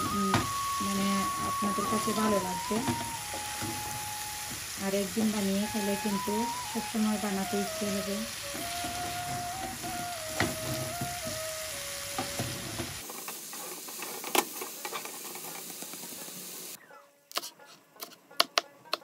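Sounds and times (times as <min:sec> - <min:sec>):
eggplant sizzling in a pan: 0:00.0 - 0:16.8
wooden spatula stirring: 0:13.5 - 0:15.9.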